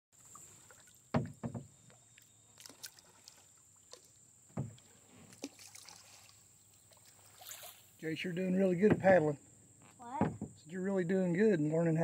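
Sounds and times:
paddle splashing in water: 0.2 - 8.0
paddle knocking against canoe: 0.7 - 2.0, 4.4 - 5.5, 8.5 - 9.4, 10.0 - 10.6.

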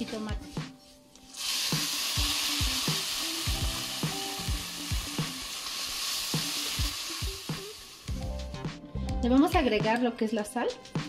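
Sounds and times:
loud sizzle in hot oil: 1.3 - 8.3.

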